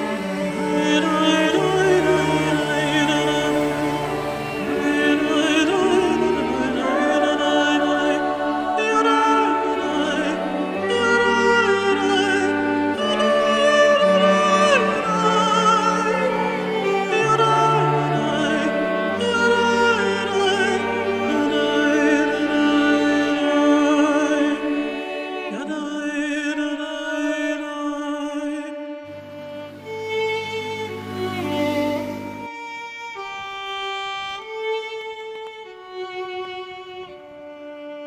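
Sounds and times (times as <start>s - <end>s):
held low notes: 0.0s - 15.1s, 28.8s - 32.6s
slow melody with vibrato: 0.0s - 19.8s, 28.5s - 34.8s.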